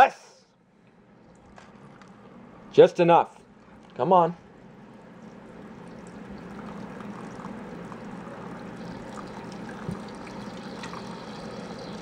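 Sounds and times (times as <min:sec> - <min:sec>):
tap water pouring into container: 0:05.2 - 0:12.0.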